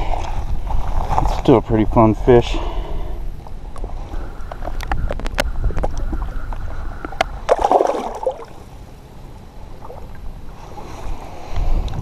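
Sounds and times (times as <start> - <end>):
water sloshing: 3.9 - 8.8
fish splashing: 4.6 - 8.7.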